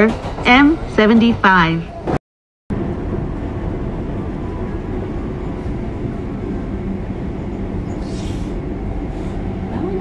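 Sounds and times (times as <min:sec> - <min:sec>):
train equipment humming: 0:02.7 - 0:10.0.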